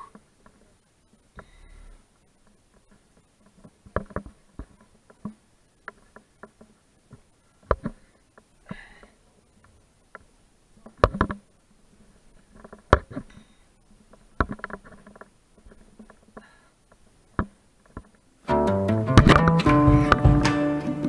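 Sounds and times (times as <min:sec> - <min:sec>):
plucked-string music: 0:18.4 - 0:21.0.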